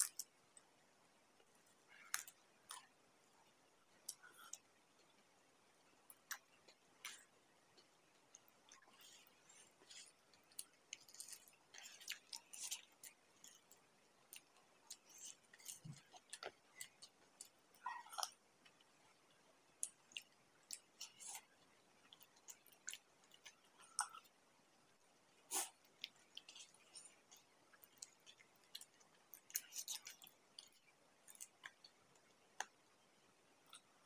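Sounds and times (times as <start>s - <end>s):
chewing crisp food: 6.0s - 24.4s, 25.4s - 34.0s.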